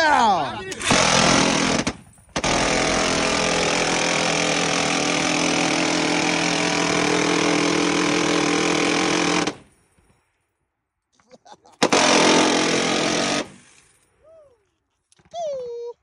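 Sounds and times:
minigun firing continuous burst: 0.8s - 9.7s, 11.8s - 13.7s.

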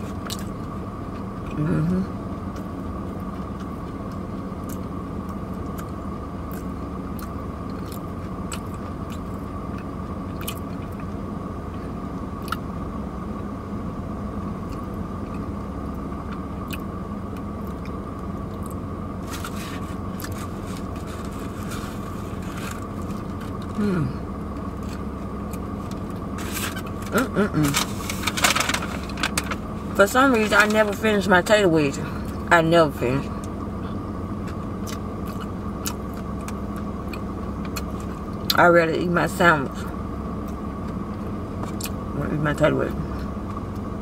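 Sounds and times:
person chewing: 0.0s - 0.6s, 2.5s - 11.1s, 12.4s - 12.6s, 16.6s - 28.3s, 33.9s - 38.6s
hummed murmur: 0.0s - 44.0s
low hum inside car: 0.0s - 44.0s
foil wrapper crinkling: 26.4s - 29.6s.

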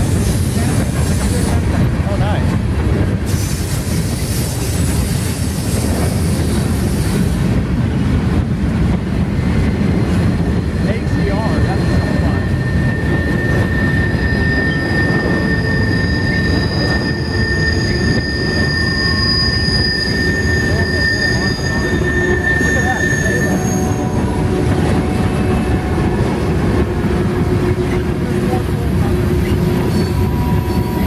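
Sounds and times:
steel wheels rumbling on rail: 0.0s - 31.0s
high wheel squeal: 10.5s - 26.4s, 28.7s - 31.0s.

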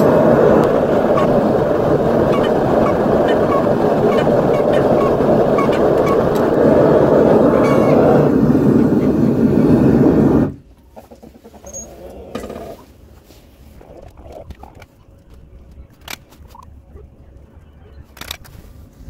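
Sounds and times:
furnace burner roaring: 0.0s - 10.7s.

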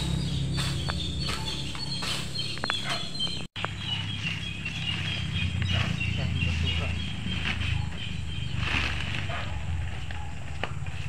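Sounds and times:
garden tool chopping soil: 0.0s - 2.9s
birds chirping: 0.0s - 11.0s.

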